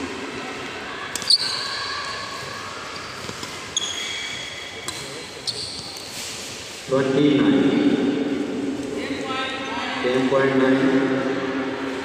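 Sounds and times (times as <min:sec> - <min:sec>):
racket hitting shuttlecock: 0:01.1 - 0:01.6, 0:03.1 - 0:04.2
shoe squeaks on court: 0:01.2 - 0:01.8, 0:03.0 - 0:06.6.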